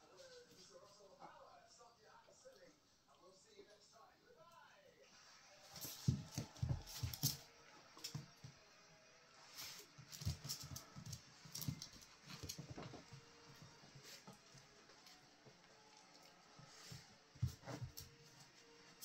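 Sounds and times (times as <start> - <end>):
dogs bodies bumping: 5.7 - 7.4, 10.2 - 14.4
dog claws skittering on floor: 5.7 - 8.3, 10.0 - 13.2.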